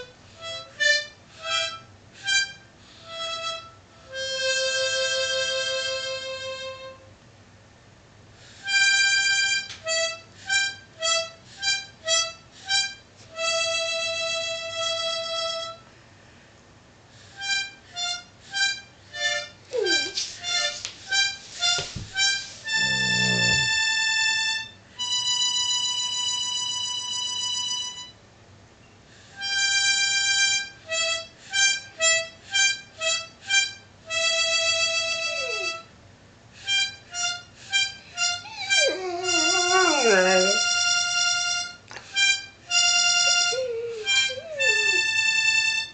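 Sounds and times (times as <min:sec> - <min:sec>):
harmonica playing: 0:00.0 - 0:07.1, 0:08.6 - 0:15.9, 0:17.3 - 0:28.2, 0:29.4 - 0:35.9, 0:36.6 - 0:45.9.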